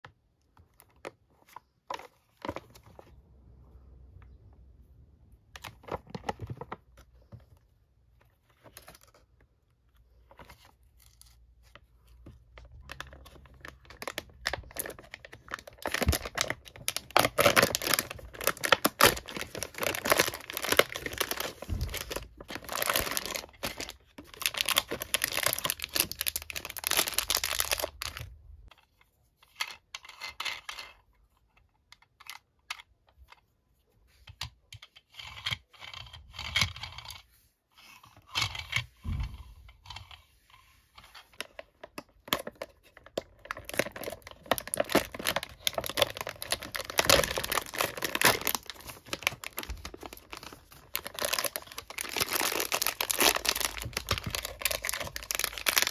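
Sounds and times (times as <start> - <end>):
plastic packaging tapping and clicking: 12.2 - 28.3, 41.4 - 55.9
foil lid crinkling: 13.8 - 28.2, 43.4 - 55.9.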